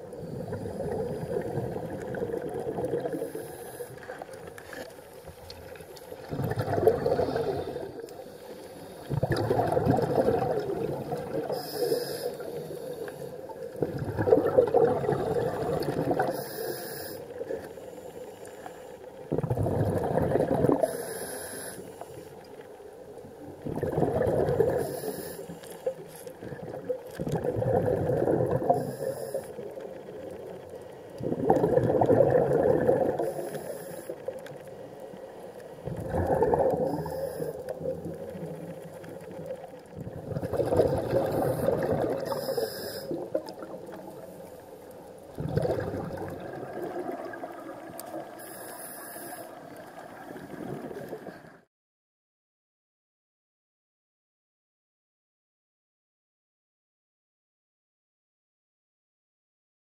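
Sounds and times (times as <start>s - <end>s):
gurgling exhaled bubbles: 0.0s - 17.6s, 19.3s - 21.1s, 23.3s - 25.2s, 25.8s - 34.7s, 35.4s - 48.5s, 49.6s - 51.7s
diver breathing through regulator: 3.0s - 4.3s, 6.5s - 9.4s, 11.4s - 13.6s, 15.1s - 22.4s, 24.5s - 26.7s, 28.5s - 29.8s, 33.0s - 37.9s, 40.6s - 43.4s, 48.4s - 49.7s.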